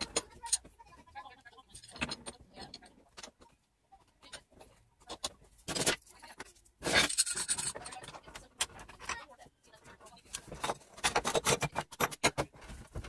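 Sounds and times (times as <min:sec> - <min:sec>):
metal clamps clicking and knocking: 0:06.8 - 0:09.2, 0:10.4 - 0:12.6.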